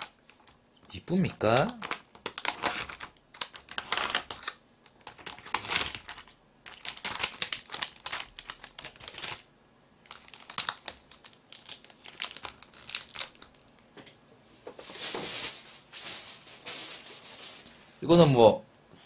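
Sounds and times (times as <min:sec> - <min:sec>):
plastic film crackling: 0:00.0 - 0:00.6, 0:01.2 - 0:13.8, 0:14.7 - 0:17.8.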